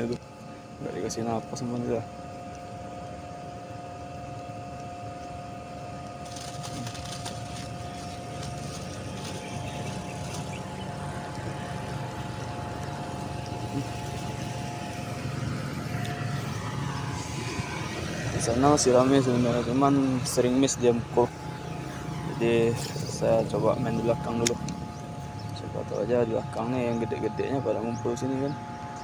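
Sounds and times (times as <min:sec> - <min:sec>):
mechanical hum with whine: 0:00.0 - 0:29.0.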